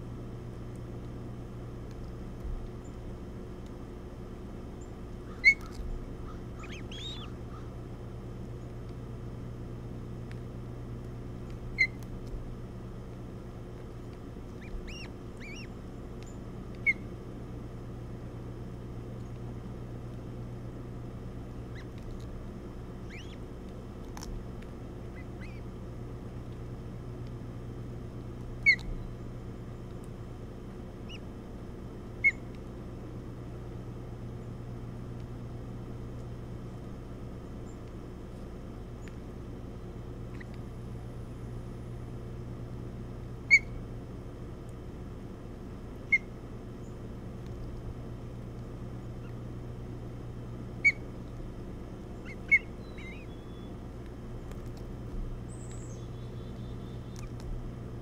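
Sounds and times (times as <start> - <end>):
steady low hum: 0.0 - 58.0
ospreys chirping: 4.8 - 7.8, 11.7 - 12.0, 14.5 - 17.2, 21.6 - 22.0, 22.9 - 23.6, 25.0 - 25.8, 28.6 - 29.2, 31.0 - 31.3, 32.2 - 32.5, 43.4 - 43.8, 50.8 - 51.2, 52.1 - 53.8.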